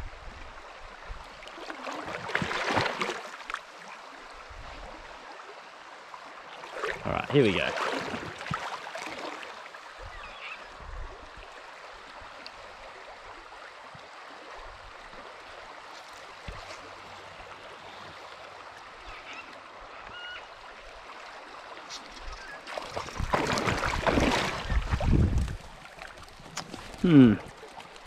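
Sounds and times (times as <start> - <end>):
water rushing over rocks: 6.6 - 9.6, 22.5 - 28.0.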